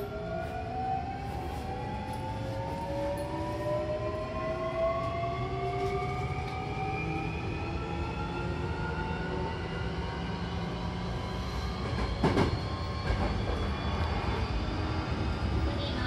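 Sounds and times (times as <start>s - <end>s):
low rumble of train car: 0.0s - 16.0s.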